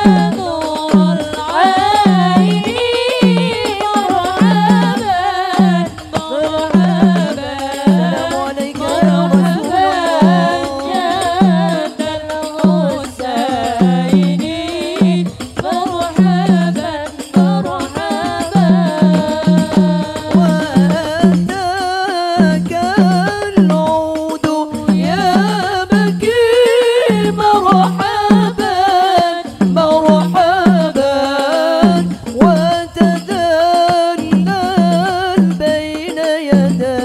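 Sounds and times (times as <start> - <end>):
low drum beat: 0.0 - 24.2
women singing into microphones: 0.0 - 37.0.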